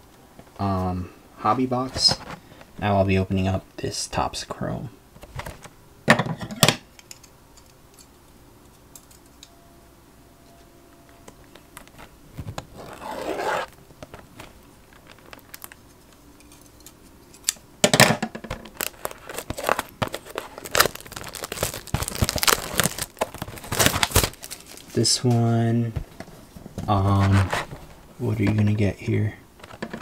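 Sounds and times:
plastic wrap tearing and crinkling: 11.9s - 15.8s, 18.6s - 25.0s.

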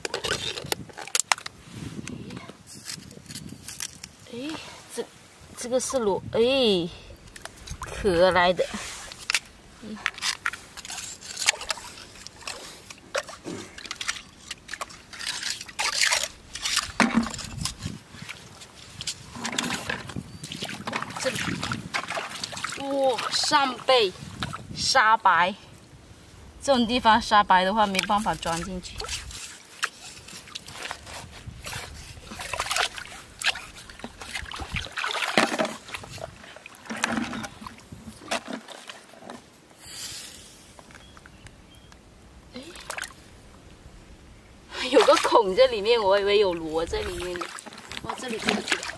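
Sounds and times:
metal tongs scraping shells and stones: 0.0s - 1.5s, 2.7s - 4.2s, 9.1s - 18.3s
shallow water sloshing and trickling: 2.7s - 25.1s, 25.8s - 39.6s, 42.5s - 43.7s, 44.7s - 48.9s
wet sand squelching: 7.5s - 24.8s, 27.2s - 39.2s, 44.7s - 48.9s
splashing scrape: 8.6s - 24.6s, 27.8s - 40.4s, 44.8s - 48.9s.

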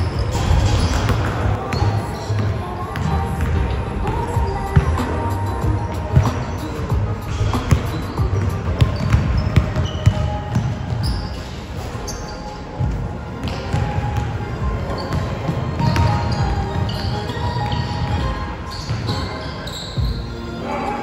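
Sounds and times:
shoe squeaks on court floor: 0.0s - 3.1s, 5.9s - 21.0s
background music: 0.0s - 21.0s
basketball bouncing: 7.3s - 11.2s, 12.8s - 14.3s, 15.0s - 16.8s.

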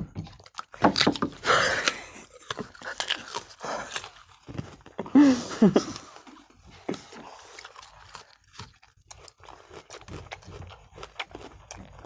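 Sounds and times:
crunching bites and wet chewing: 0.0s - 5.2s, 5.9s - 12.0s.

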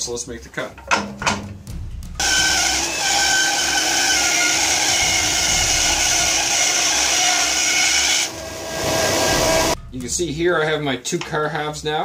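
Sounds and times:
bandsaw cutting wood: 2.2s - 9.8s.

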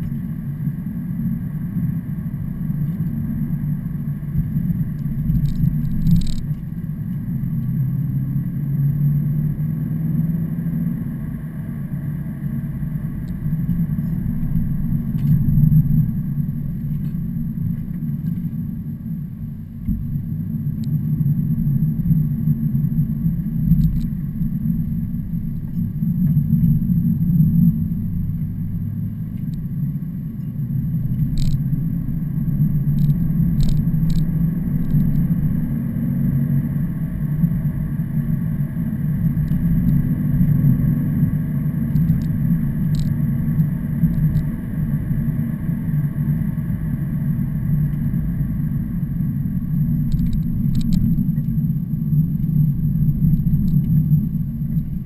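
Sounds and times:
truck engine and road rumble: 0.0s - 55.0s
faint ticks: 5.0s - 7.7s, 23.7s - 24.2s, 30.4s - 31.7s, 32.9s - 35.3s, 41.9s - 44.5s, 50.0s - 51.6s.

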